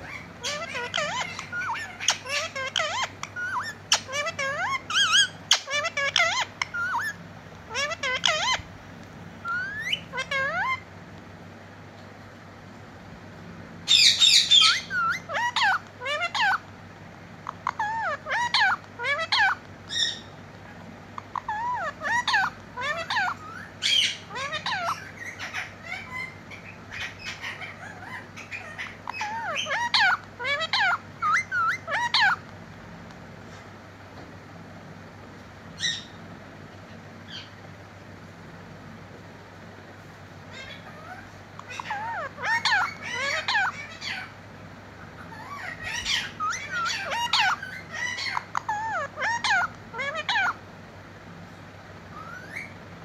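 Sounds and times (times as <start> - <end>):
parakeet squawking: 0.0 - 8.8, 9.4 - 11.0, 13.8 - 16.8, 17.4 - 33.0, 35.7 - 37.6, 40.4 - 50.7, 52.0 - 52.8.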